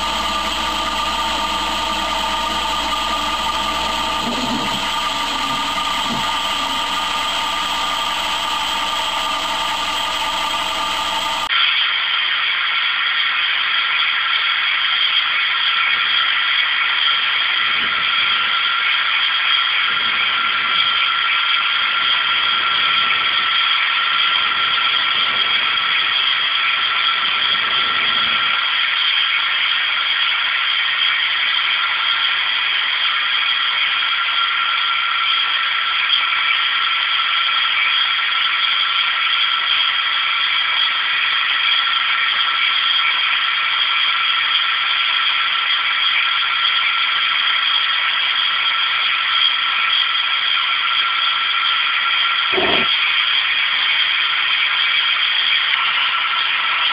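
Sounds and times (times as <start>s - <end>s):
lathe whine with hiss: 0.0s - 11.5s
low rumble: 0.0s - 11.5s.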